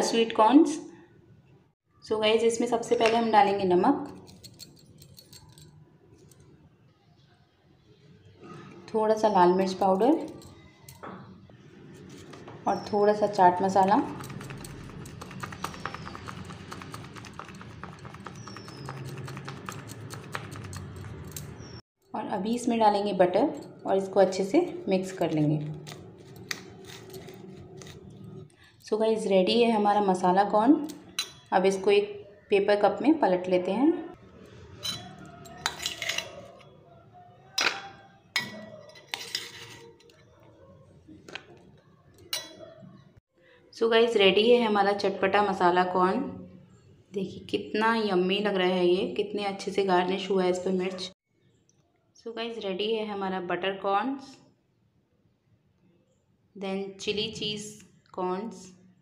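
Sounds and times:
steel spoon scraping steel bowl: 23.5s - 28.5s, 34.4s - 36.8s, 37.6s - 40.3s.

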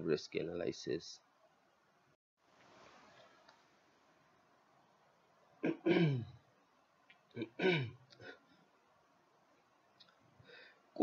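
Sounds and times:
man clearing his throat: 5.6s - 6.4s, 7.4s - 8.0s.

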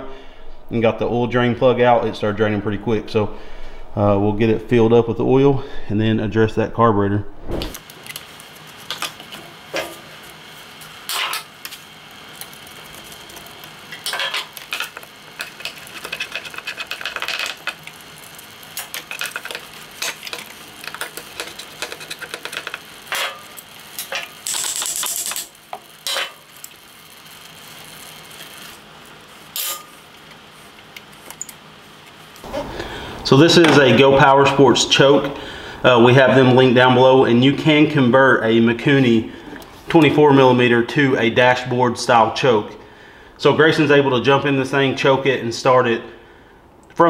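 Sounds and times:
metal parts clicking and clinking: 13.9s - 17.9s, 18.8s - 26.8s, 29.6s - 29.9s
screwdriver working a hose clamp: 18.8s - 26.7s.

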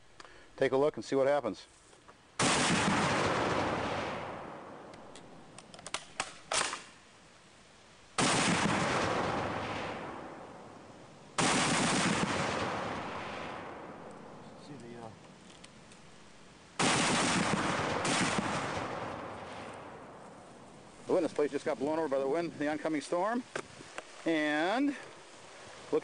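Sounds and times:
heavy machine gun firing: 2.4s - 4.3s, 8.2s - 9.8s, 11.4s - 13.0s, 16.8s - 19.2s.

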